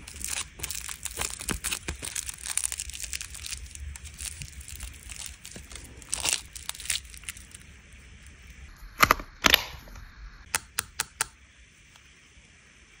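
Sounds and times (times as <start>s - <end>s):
plastic film crinkling: 0.0s - 8.4s.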